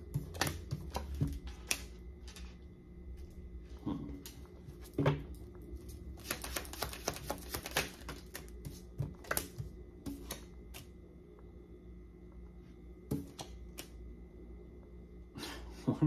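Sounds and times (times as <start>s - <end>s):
cards shuffling: 6.1s - 10.9s
cards clicking and flicking: 6.2s - 10.9s.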